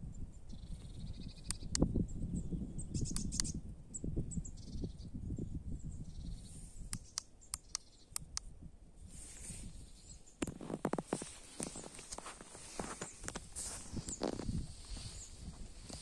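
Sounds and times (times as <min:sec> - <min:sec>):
faint birds chirping: 0:00.0 - 0:08.6, 0:09.2 - 0:16.0
sharp clicks: 0:01.4 - 0:01.9, 0:03.1 - 0:03.5, 0:06.9 - 0:08.5.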